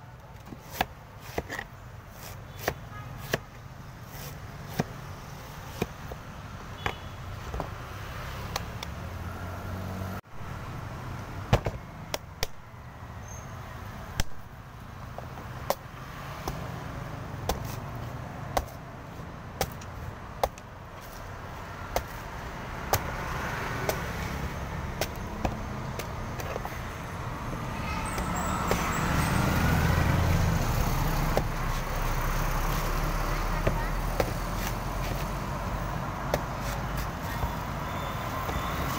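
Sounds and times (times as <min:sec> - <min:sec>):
traffic noise: 0:00.0 - 0:38.9
cleaver chopping coconut: 0:00.5 - 0:06.1, 0:15.1 - 0:18.9, 0:19.5 - 0:26.8, 0:30.8 - 0:32.0, 0:33.4 - 0:35.2, 0:36.2 - 0:37.6.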